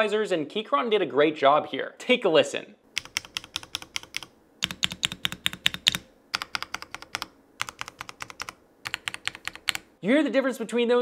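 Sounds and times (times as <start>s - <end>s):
mechanical keyboard clacking: 3.0s - 9.9s.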